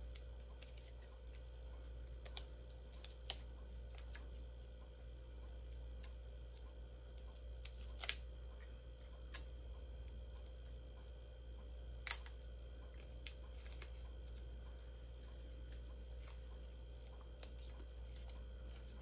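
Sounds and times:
glue dots clicking and paper rustling: 0.0s - 4.4s.

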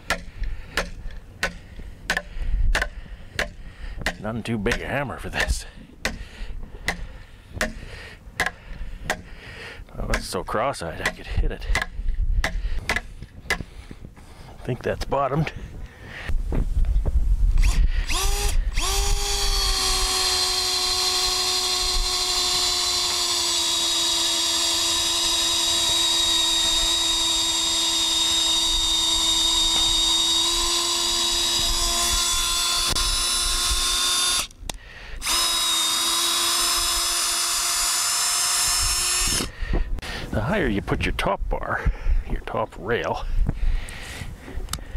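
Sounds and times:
power drill boring into wood: 17.6s - 34.6s, 35.2s - 39.5s.

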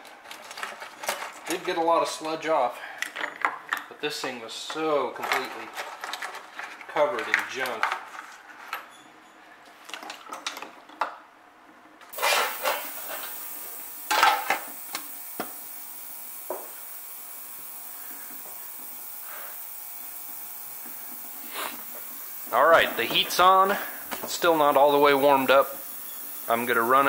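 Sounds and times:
ultrasonic cleaner hissing: 12.1s - 27.0s.

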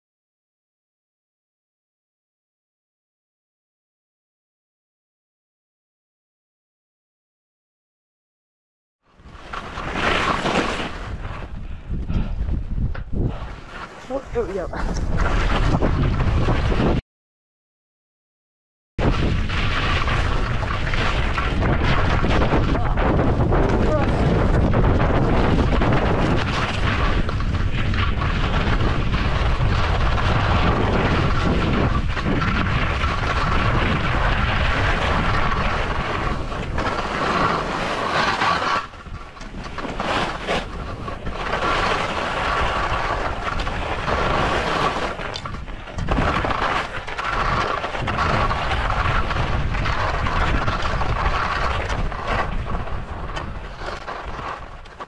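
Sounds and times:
skis scraping over snow: 9.2s - 17.0s, 19.0s - 55.0s
wind rumble on microphone: 9.2s - 17.0s, 19.0s - 55.0s.

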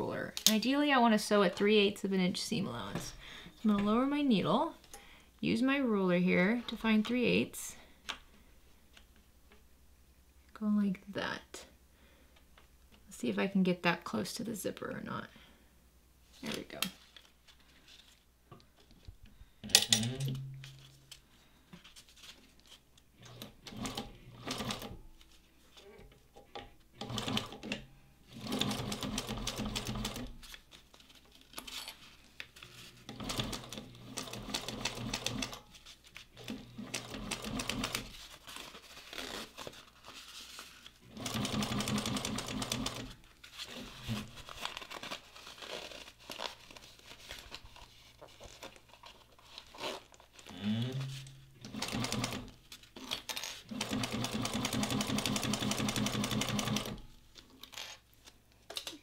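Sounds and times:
sewing machine stitching: 36.4s - 38.1s, 41.1s - 43.2s, 50.9s - 52.6s, 53.6s - 57.0s.

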